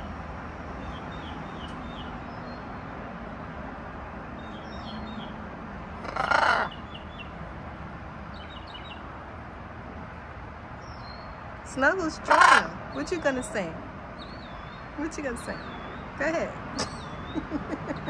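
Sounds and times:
songbirds chirping: 0.0 - 18.0
steady background noise: 0.0 - 18.0
harsh caw-like bird call: 6.0 - 6.8.

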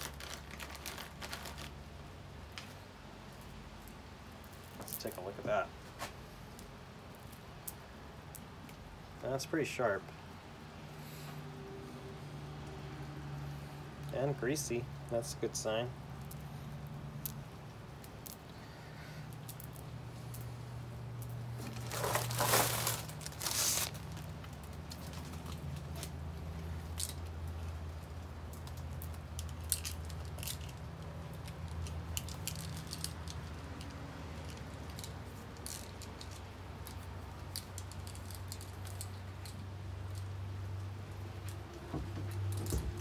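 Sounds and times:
rustling handling noises: 0.0 - 7.8, 18.0 - 40.3, 41.1 - 43.0
chain links clinking and rattling: 28.6 - 40.3.

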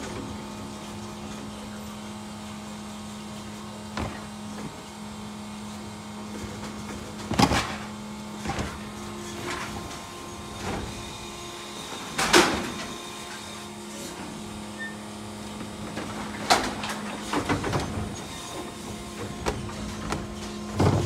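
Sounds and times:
motor and hydraulic hum: 0.0 - 21.0.

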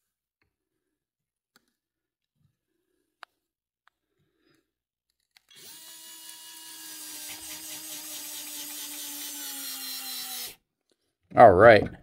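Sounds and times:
cordless screwdriver motor whine: 5.5 - 10.6.

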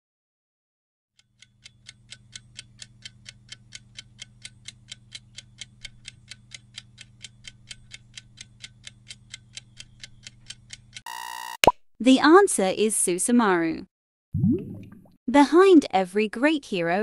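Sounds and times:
clock ticking: 1.2 - 11.0.

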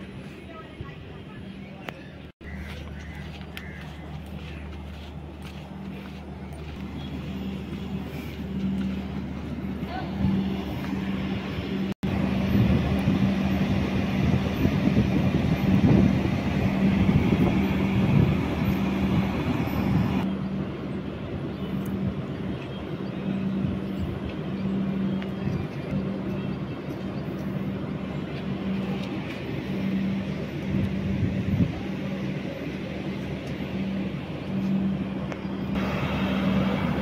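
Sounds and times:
train low hum: 0.0 - 37.0.

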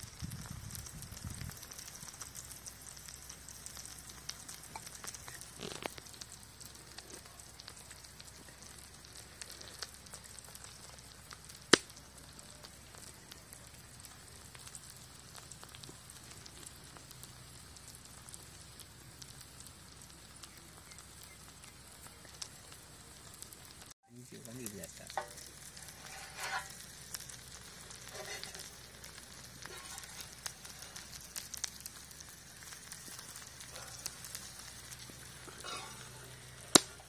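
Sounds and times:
eggs sizzling in oil: 0.0 - 37.0
oil popping: 0.2 - 12.3, 25.1 - 37.0.

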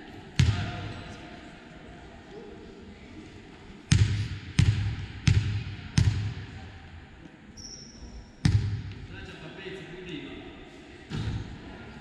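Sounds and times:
basketball bouncing on gym floor: 0.4 - 0.7, 3.9 - 6.4, 8.4 - 9.0.

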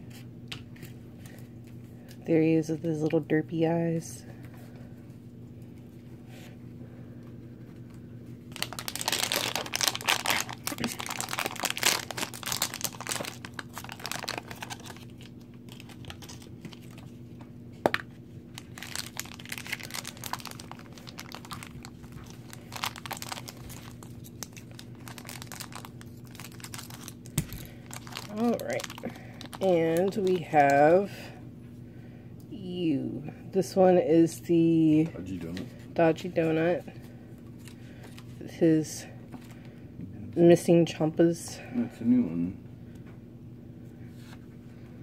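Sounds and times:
steady low hum: 0.0 - 45.0
packaging crinkling and tearing: 8.5 - 17.2, 18.5 - 30.7.

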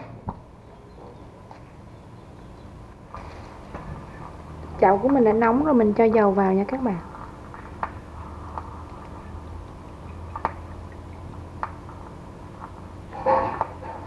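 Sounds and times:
steady low hum: 0.0 - 14.0
oil trickling into pan: 7.1 - 13.0.

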